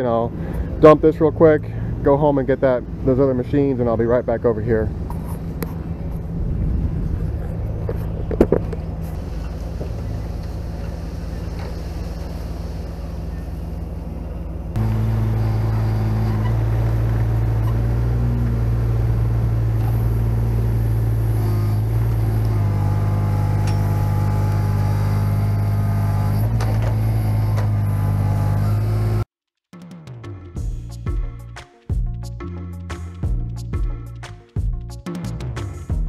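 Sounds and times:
dump truck engine running: 0:00.0 - 0:29.3
mini excavator diesel engine: 0:00.0 - 0:29.3
sod tipping from truck bed: 0:07.8 - 0:09.0.

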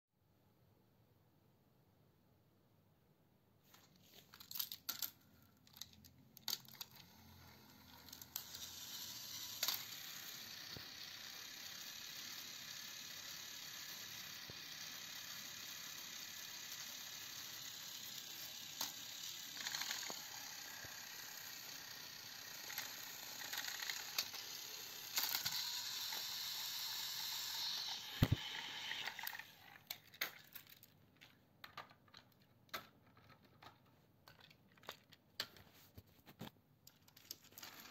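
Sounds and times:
toy train motor whirring: 0:04.2 - 0:35.7, 0:37.0 - 0:37.9
toy train clicks: 0:04.4 - 0:35.6, 0:36.9 - 0:37.9.

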